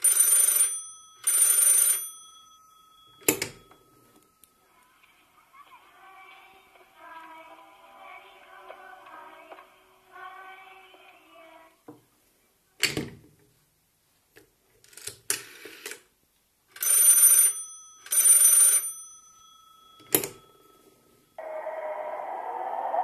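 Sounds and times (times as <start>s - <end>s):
telephone ringing: 0.0s - 4.8s, 16.8s - 21.6s
telephone handset clacking: 3.2s - 3.7s.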